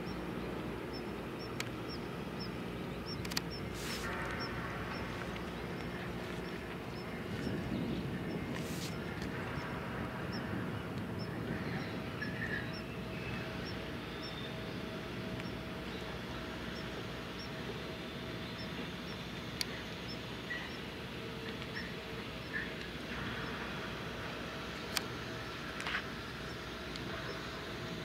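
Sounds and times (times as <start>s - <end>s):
ship engines droning: 0.0s - 28.0s
steady hum: 0.0s - 28.0s
sharp click: 3.1s - 4.5s.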